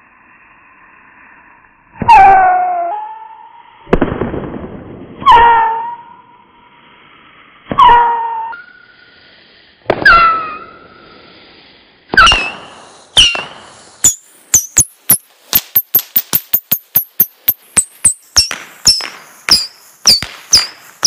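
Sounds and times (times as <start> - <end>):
falling whistle: 12.2 - 14.9.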